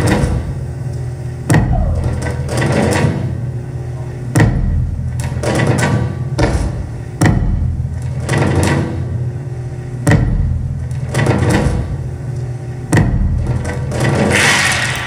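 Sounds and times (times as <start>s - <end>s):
heavy percussive hits: 1.5s - 3.4s, 12.9s - 15.0s.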